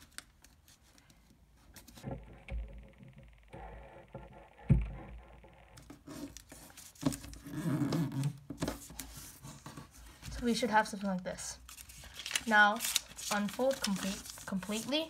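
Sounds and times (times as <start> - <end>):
paper rustling and crackling: 11.6 - 15.0.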